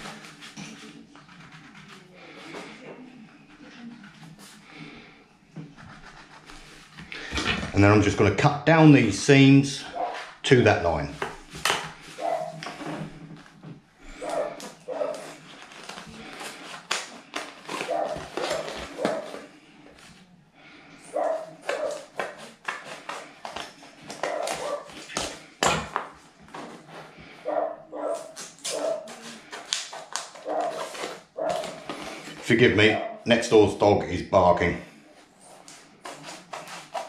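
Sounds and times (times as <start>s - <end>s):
dog barking: 9.9s - 10.3s, 12.2s - 12.6s, 14.2s - 15.3s, 17.8s - 19.4s, 21.1s - 22.0s, 24.2s - 24.9s, 27.4s - 29.2s, 30.4s - 31.8s, 32.9s - 33.3s
scissors snipping plastic: 14.2s - 19.5s, 28.1s - 32.4s.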